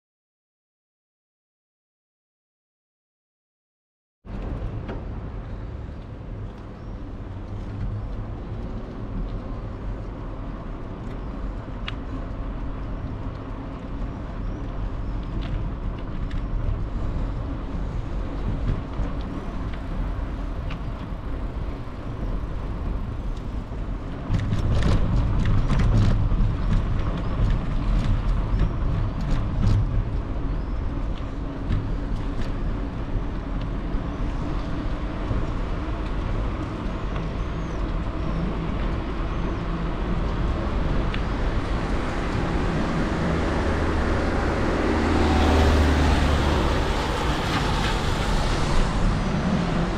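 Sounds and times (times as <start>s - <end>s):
wind and tyres rumbling: 4.2s - 49.9s
bicycle clicks and rattles: 5.9s - 39.1s.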